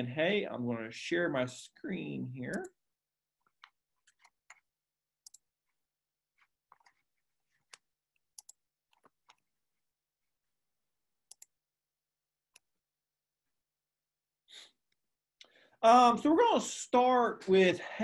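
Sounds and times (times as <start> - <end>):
computer mouse clicks: 3.6 - 5.5, 7.6 - 9.4, 11.3 - 11.5.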